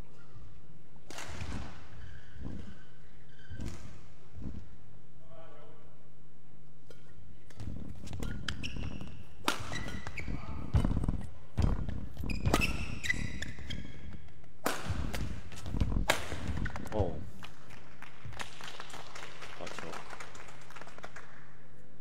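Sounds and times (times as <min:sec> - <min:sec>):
shoes squeaking on court: 0:00.0 - 0:04.8, 0:06.9 - 0:17.0
racket hitting shuttlecock: 0:01.0 - 0:02.7, 0:06.8 - 0:16.8.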